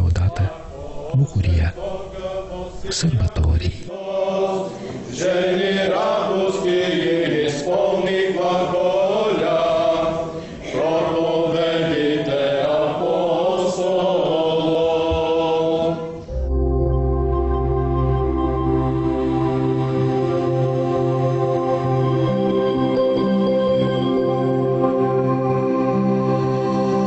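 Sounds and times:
group of voices chanting: 0.3 - 3.1, 3.9 - 16.2
soft ambient music: 16.1 - 27.0
low drone note: 16.3 - 23.1.

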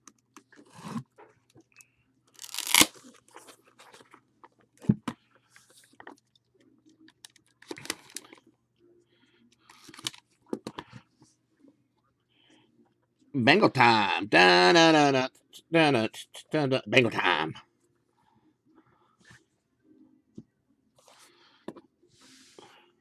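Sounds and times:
card pack wrapper tearing: 2.3 - 3.1.

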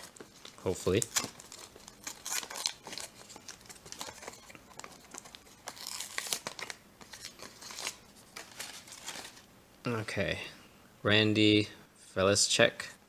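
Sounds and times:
foil wrapper crinkling: 0.0 - 9.4.

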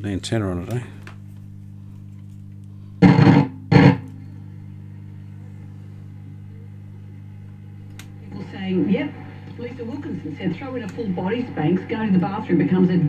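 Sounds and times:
radio mains hum: 0.0 - 13.0
guitar music bursts from radio: 3.0 - 4.3.

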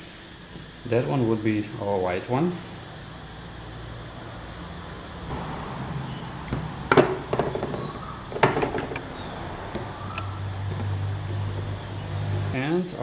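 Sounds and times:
loud knocks: 6.6 - 9.1.

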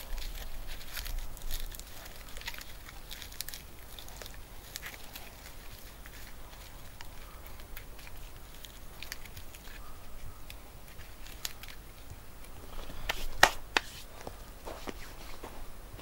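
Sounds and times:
bark cord rustling and crackling: 0.0 - 15.7.

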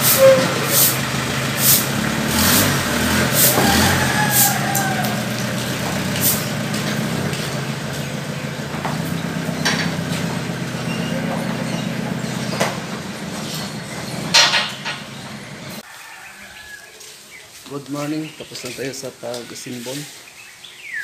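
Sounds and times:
van engine driving off: 0.0 - 15.8.

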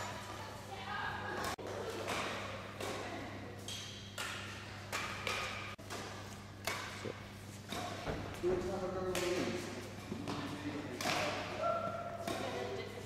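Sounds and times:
rackets hitting shuttlecock: 1.4 - 12.8.

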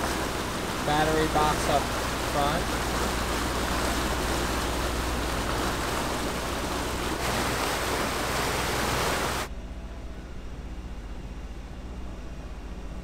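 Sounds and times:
rush of wind and water: 0.0 - 9.5
low engine drone: 0.0 - 13.0.

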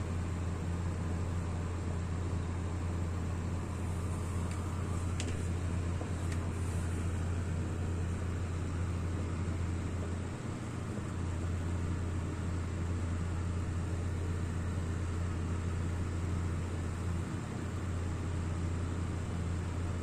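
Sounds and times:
low hum: 0.0 - 17.2
stove burner flame rushing: 2.9 - 11.9.

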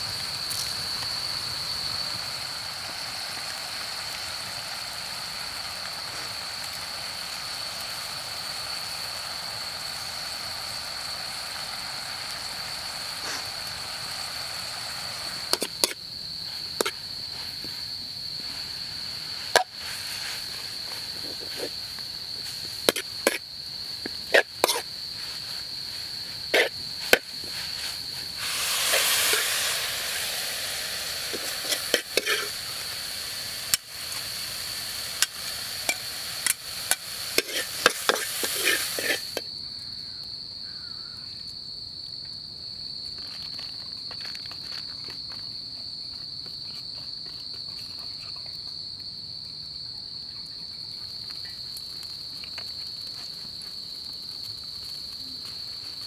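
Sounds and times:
hiss: 0.0 - 39.5, 50.8 - 56.0
high-pitched insect drone: 0.0 - 41.4
metal spatula scraping wok: 24.3 - 24.9, 26.5 - 32.6, 35.9 - 39.4.

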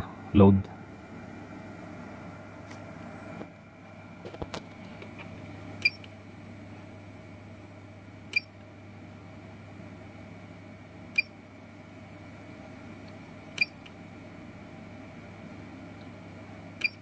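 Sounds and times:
steady low hum: 0.0 - 17.0
short key-press beeps: 5.8 - 6.1, 13.6 - 13.9, 16.8 - 17.0.

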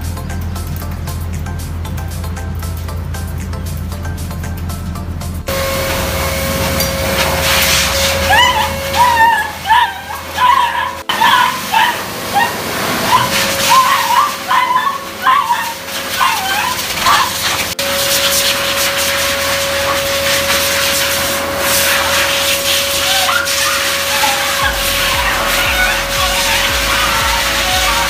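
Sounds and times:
blow dryer whirring: 1.0 - 28.0
puppy whining and yelping: 8.1 - 17.7, 23.0 - 28.0.

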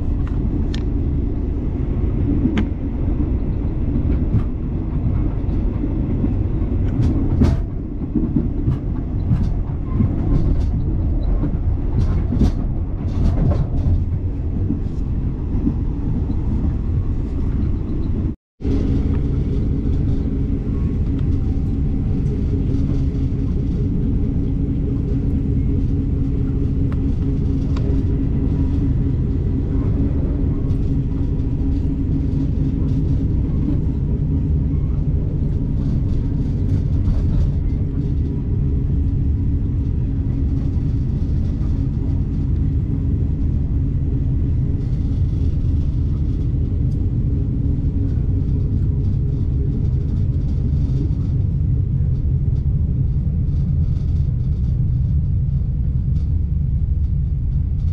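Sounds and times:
low hum: 0.0 - 57.9
train rumble: 0.0 - 57.9.

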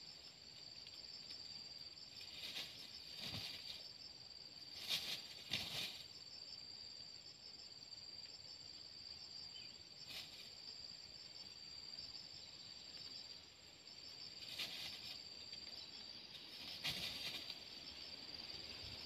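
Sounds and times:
insects chirring: 0.0 - 19.0
dry leaf litter rustling: 16.4 - 17.6.

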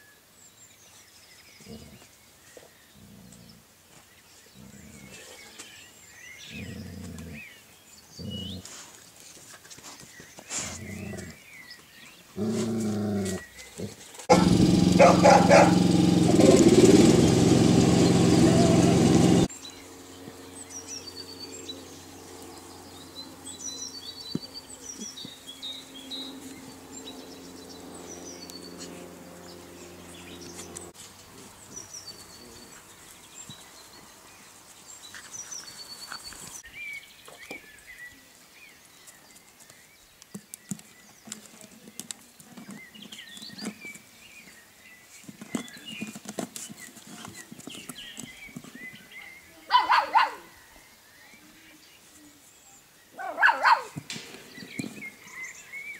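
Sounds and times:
small birds chirping: 0.0 - 55.9
light clicks and scuffles: 8.6 - 11.2.

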